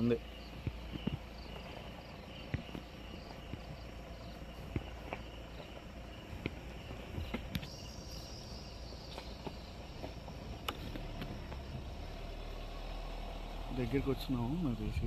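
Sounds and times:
insects chirring: 0:00.0 - 0:15.0
slowly moving car rumble: 0:00.0 - 0:15.0.

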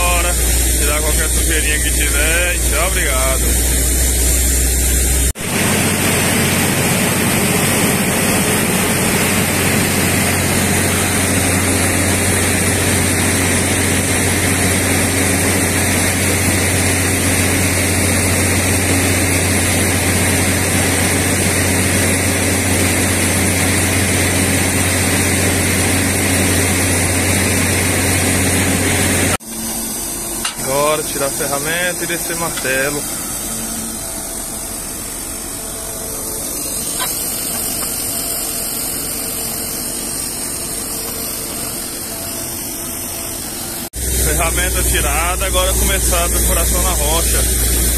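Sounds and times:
drilling rig engine drone: 0:00.0 - 0:47.9
hiss of circulating water: 0:29.5 - 0:47.9.

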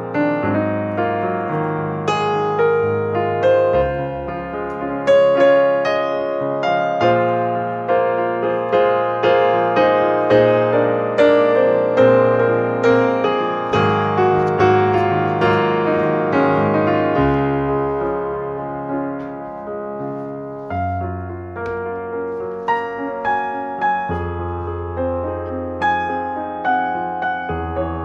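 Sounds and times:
piano music: 0:00.0 - 0:28.0.

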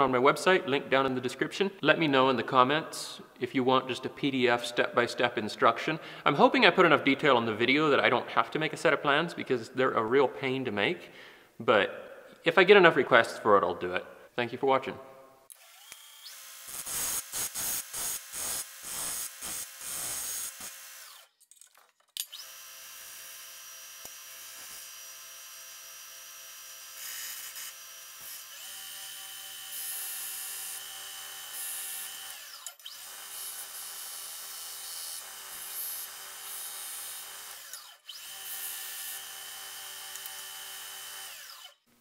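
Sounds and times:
belt grinder grinding steel: 0:15.5 - 0:21.4, 0:22.2 - 0:41.9.

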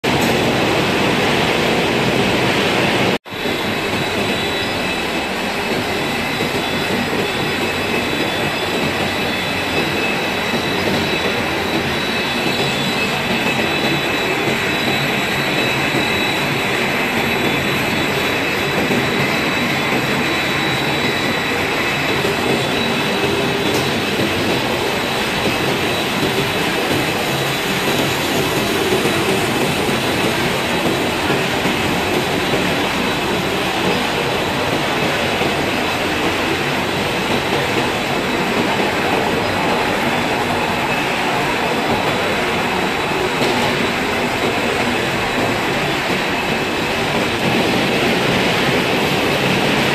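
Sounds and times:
high machine whines: 0:00.1 - 0:49.9
production line machinery hum: 0:00.1 - 0:49.9.

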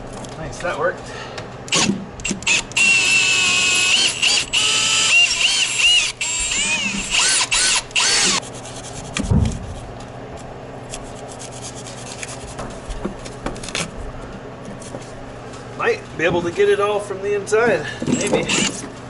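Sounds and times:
cordless drill motor: 0:01.7 - 0:08.4, 0:18.1 - 0:18.9
low thump: 0:09.2 - 0:09.8.

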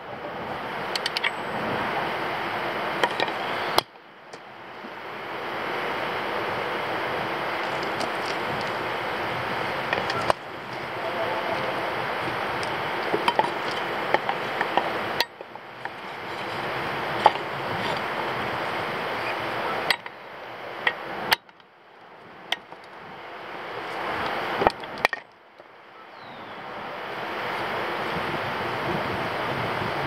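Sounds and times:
steady background rush: 0:00.0 - 0:21.4.

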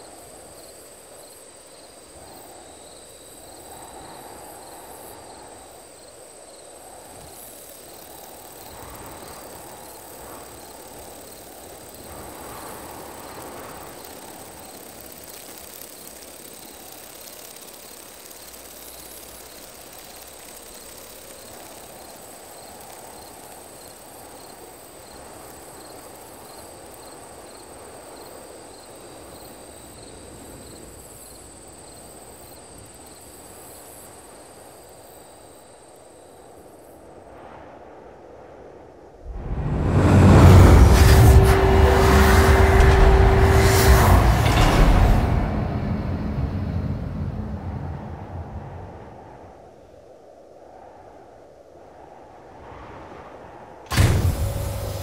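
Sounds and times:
crickets chirping: 0:00.0 - 0:55.0
low rushing drone: 0:39.2 - 0:49.6, 0:53.9 - 0:55.0.

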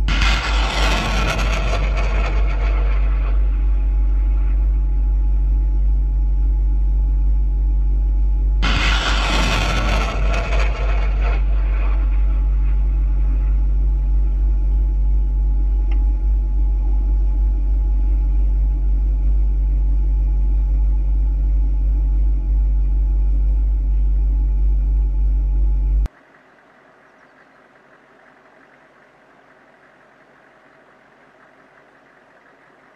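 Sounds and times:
rocket motor roaring: 0:00.0 - 0:05.7, 0:08.5 - 0:32.9
vehicle engine idling: 0:11.4 - 0:32.9.

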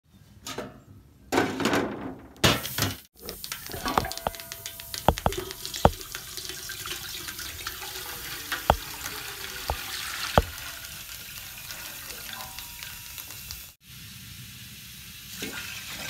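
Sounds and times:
metal pot clanking on stove: 0:03.2 - 0:10.8
water pouring into pot: 0:03.2 - 0:13.8.

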